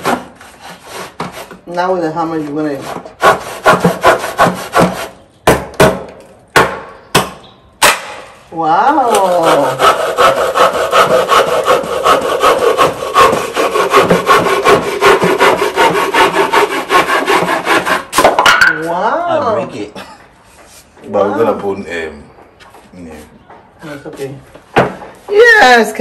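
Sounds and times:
hand saw cutting wood: 0:00.0 - 0:01.6, 0:02.2 - 0:05.2, 0:09.0 - 0:18.3.

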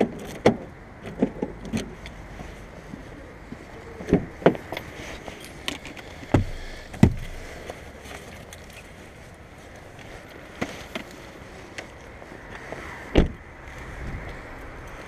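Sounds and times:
outdoor background noise: 0:00.0 - 0:15.0
car door thumps: 0:04.1 - 0:04.6, 0:06.3 - 0:07.4, 0:13.2 - 0:13.4.

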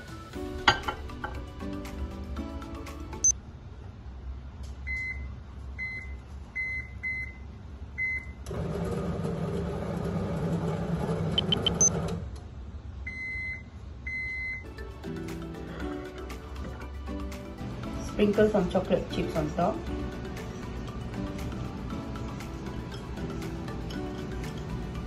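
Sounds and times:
microwave oven humming: 0:00.0 - 0:18.0
long microwave beeps: 0:04.8 - 0:08.4, 0:11.4 - 0:12.0, 0:13.0 - 0:14.8
microwave keypad beeping: 0:11.4 - 0:12.0, 0:13.1 - 0:14.7.

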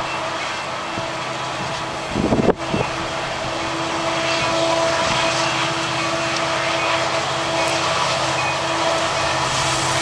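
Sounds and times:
diesel locomotive droning: 0:00.0 - 0:10.0
wind buffet on microphone: 0:00.9 - 0:05.4.

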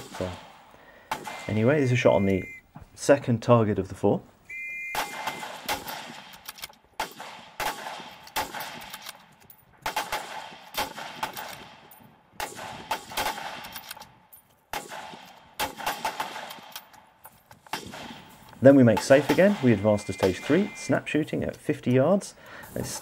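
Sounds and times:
rifle shots echoing: 0:00.0 - 0:02.3, 0:04.9 - 0:09.2, 0:09.8 - 0:13.9, 0:14.7 - 0:16.8, 0:17.7 - 0:20.8.

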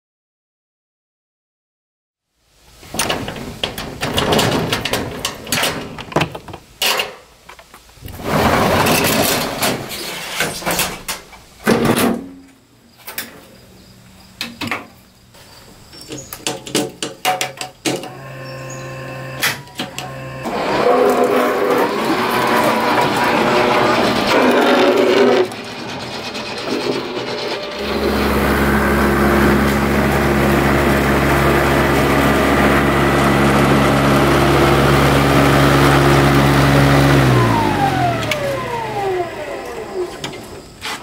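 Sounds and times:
shed door rolling up: 0:02.8 - 0:07.2, 0:08.0 - 0:12.5, 0:16.2 - 0:41.0
metal bolt clanking and rattling: 0:03.0 - 0:07.2
low electric hum: 0:18.0 - 0:20.8, 0:27.6 - 0:40.6
electric drive whirring: 0:18.0 - 0:40.6.

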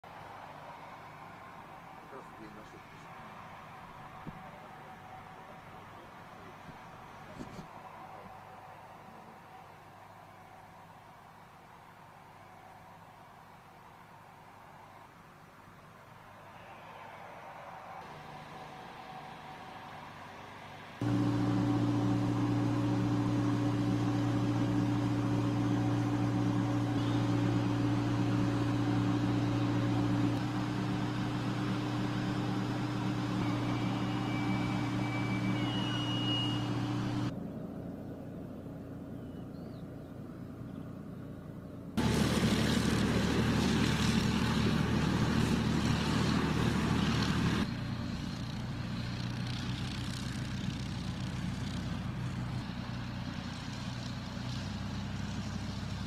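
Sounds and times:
vehicle engine humming: 0:21.0 - 0:56.0.

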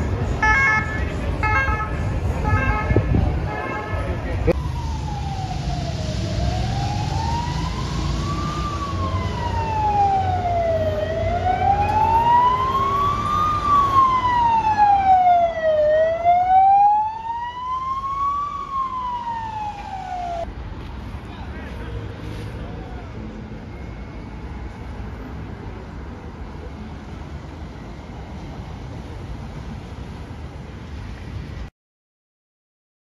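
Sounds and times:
low traffic rumble: 0:00.0 - 0:31.7
police siren wailing: 0:04.5 - 0:20.5.

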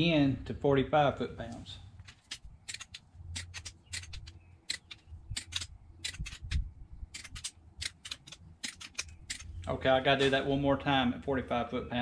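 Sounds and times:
torque wrench clicking: 0:02.3 - 0:09.5.

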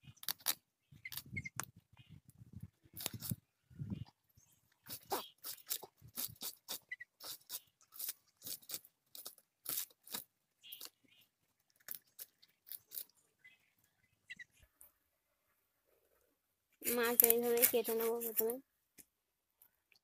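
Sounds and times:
knife scraping fish scales: 0:04.9 - 0:11.0.

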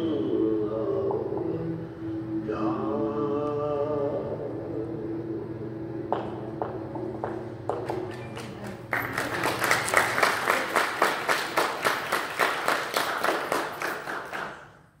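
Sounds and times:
congregation applauding: 0:07.8 - 0:14.9.

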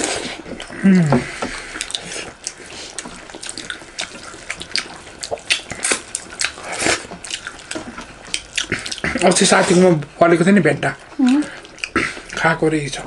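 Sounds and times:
fingers squelching food on plates: 0:00.0 - 0:10.2
wet chewing and mouth smacking: 0:00.0 - 0:12.6.

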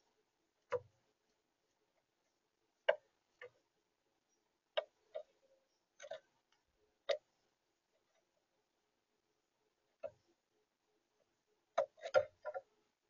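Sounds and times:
bird pecking seed in plastic feeder: 0:11.7 - 0:12.7.

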